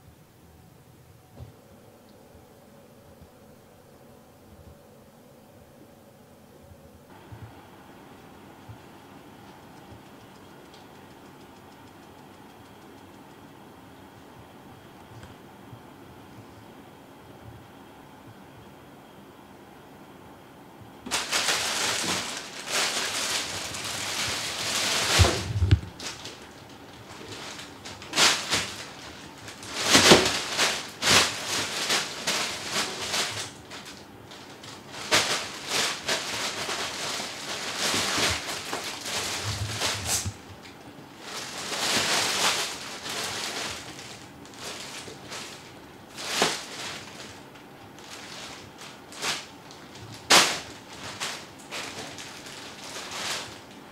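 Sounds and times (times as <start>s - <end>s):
plastic bag crinkling: 21.1s - 53.9s.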